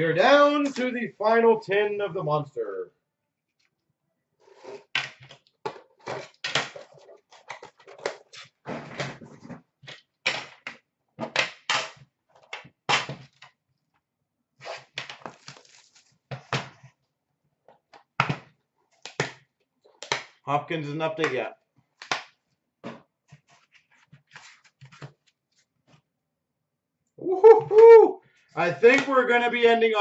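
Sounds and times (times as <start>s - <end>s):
packaging rustling: 15.2s - 16.1s.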